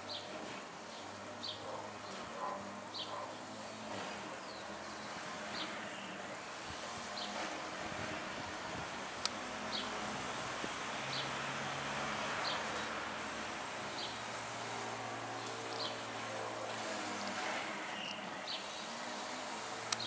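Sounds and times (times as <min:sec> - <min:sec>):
sparrows chirping: 0:00.0 - 0:06.3, 0:07.0 - 0:07.4, 0:09.6 - 0:10.0, 0:11.1 - 0:11.4, 0:12.4 - 0:20.0.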